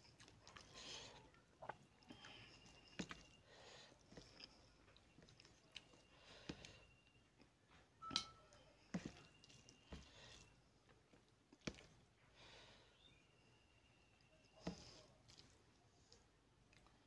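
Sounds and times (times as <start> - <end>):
chewing and mouth smacks: 0.0 - 3.4, 4.0 - 6.6, 14.6 - 15.8.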